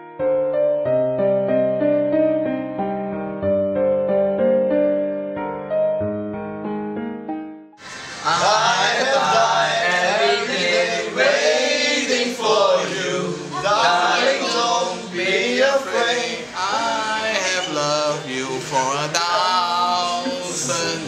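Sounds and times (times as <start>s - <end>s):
piano music: 0.0s - 21.0s
group of men singing unaccompanied: 8.2s - 21.0s.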